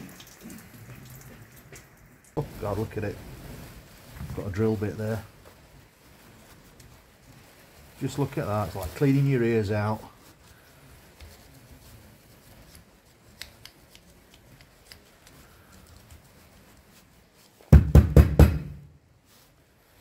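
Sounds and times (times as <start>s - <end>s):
loud knocks: 17.7s - 18.9s.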